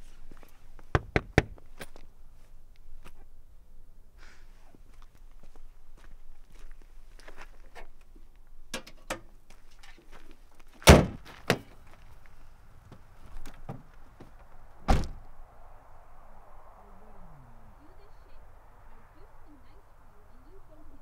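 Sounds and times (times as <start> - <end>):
light footsteps: 4.7 - 8.5, 9.4 - 14.6
car hood slamming shut: 10.8 - 11.7, 14.9 - 15.2
car door shutting: 14.8 - 15.2.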